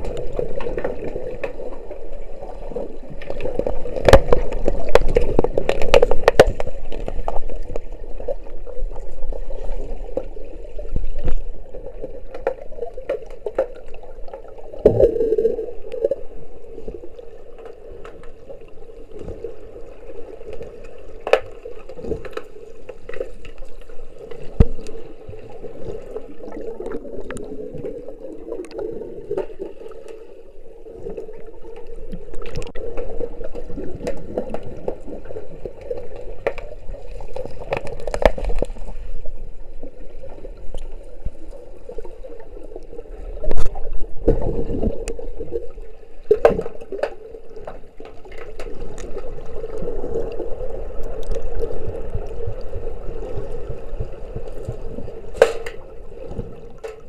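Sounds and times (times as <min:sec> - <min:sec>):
steady underwater hum: 0:00.0 - 0:57.0
underwater gurgling water: 0:00.0 - 0:57.0
underwater clicks and knocks: 0:02.7 - 0:08.6, 0:20.5 - 0:30.2, 0:31.8 - 0:39.0, 0:43.4 - 0:49.5, 0:51.0 - 0:57.0.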